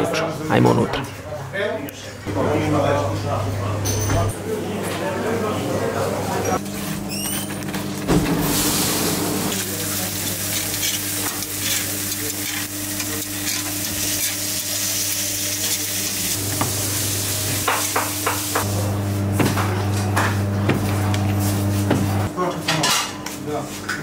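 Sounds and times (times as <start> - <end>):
patties sizzling on grill: 8.3 - 21.9.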